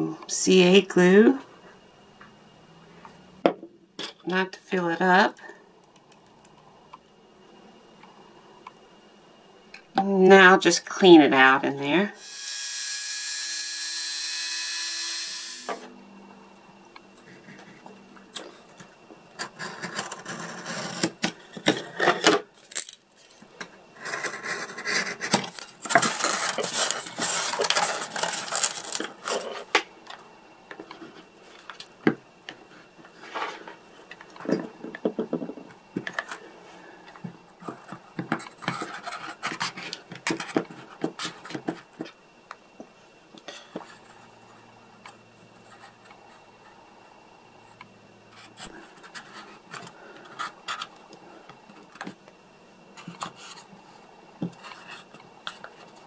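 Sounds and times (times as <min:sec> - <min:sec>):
rotary tool whining: 0:12.2 - 0:16.0.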